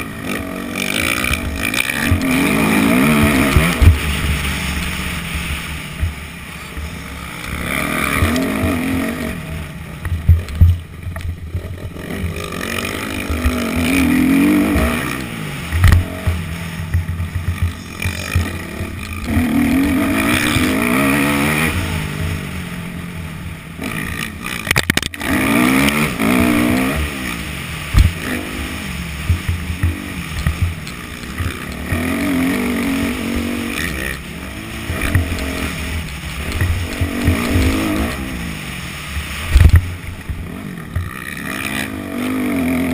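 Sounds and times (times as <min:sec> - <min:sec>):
motocross bike engine revving: 0:00.0 - 0:42.9
sharp low thumps: 0:15.7 - 0:21.1, 0:27.9 - 0:28.2.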